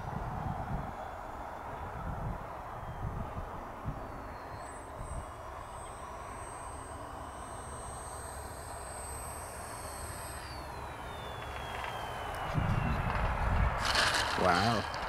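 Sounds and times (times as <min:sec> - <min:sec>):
wind noise on microphone: 0:00.0 - 0:05.6, 0:10.4 - 0:15.0
electric motor whine: 0:00.0 - 0:15.0.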